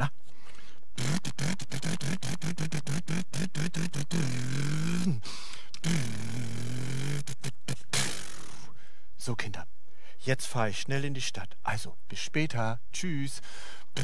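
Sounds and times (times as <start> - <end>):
person imitating car engine: 1.0 - 8.7.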